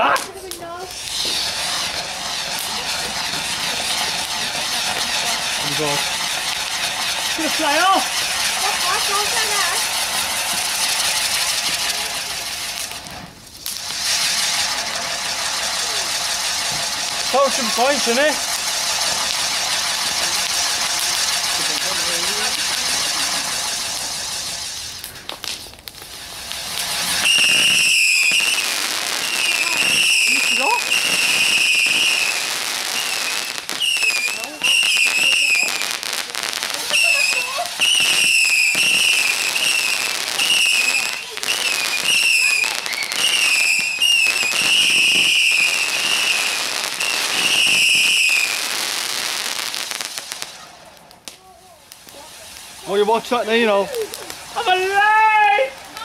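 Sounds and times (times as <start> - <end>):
sharp firework pops: 0.0 - 53.0, 53.9 - 54.6
firework hissing sparks: 0.0 - 56.0
shrill firework whistle: 0.9 - 4.0, 27.0 - 35.8, 36.9 - 49.8.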